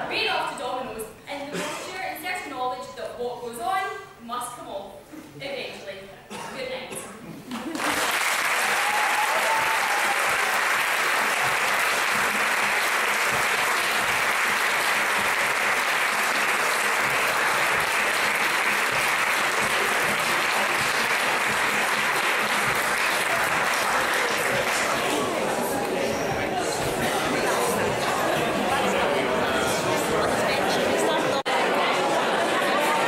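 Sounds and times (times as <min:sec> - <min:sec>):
audience applauding: 0:07.5 - 0:31.0.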